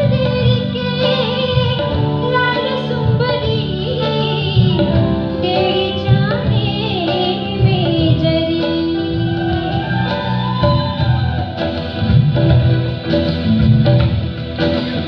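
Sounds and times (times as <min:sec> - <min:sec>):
woman singing: 0:00.0 - 0:11.6
electric guitar: 0:00.0 - 0:15.0
keyboard: 0:00.0 - 0:15.0.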